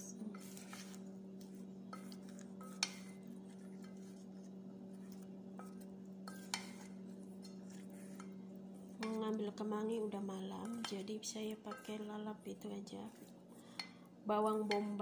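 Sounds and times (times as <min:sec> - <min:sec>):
spoon stirring in metal bowl: 0:00.0 - 0:15.0
steady low hum: 0:00.0 - 0:15.0
spoon tapping metal bowl: 0:14.6 - 0:15.0.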